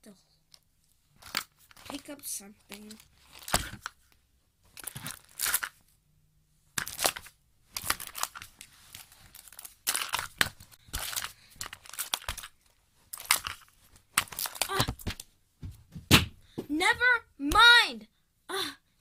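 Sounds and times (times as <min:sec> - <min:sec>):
rustling and scraping handling noise: 0:00.5 - 0:06.0, 0:06.7 - 0:16.1.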